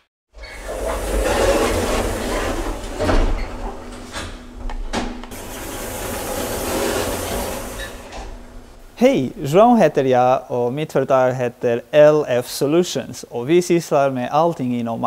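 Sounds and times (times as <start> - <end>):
machinery clicks and knocks: 0.4 - 9.0
elevator running rumble: 0.4 - 10.0.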